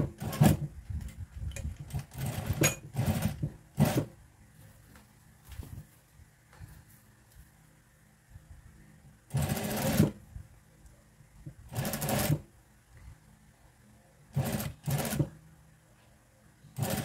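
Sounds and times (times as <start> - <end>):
sewing machine stitching: 0.0 - 0.7, 1.8 - 4.1, 9.3 - 10.2, 11.7 - 12.5, 14.3 - 15.3, 16.8 - 17.0.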